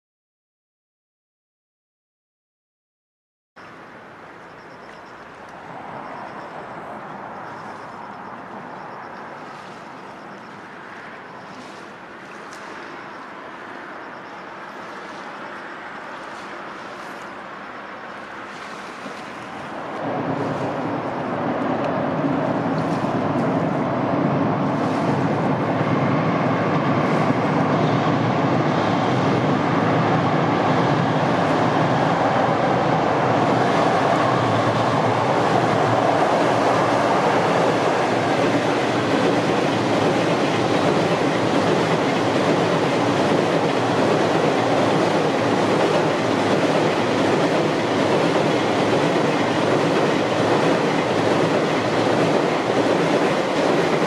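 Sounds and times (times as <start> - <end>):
train wheels rumbling on bridge: 18.2 - 54.0.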